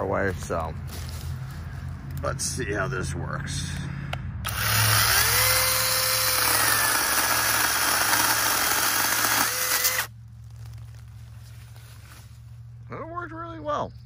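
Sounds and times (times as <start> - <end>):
mini chainsaw cutting wood: 4.5 - 10.1.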